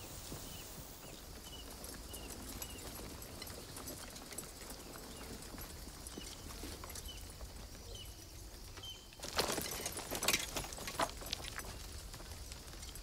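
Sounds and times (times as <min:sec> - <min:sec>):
footsteps on stony ground: 0:00.0 - 0:13.0.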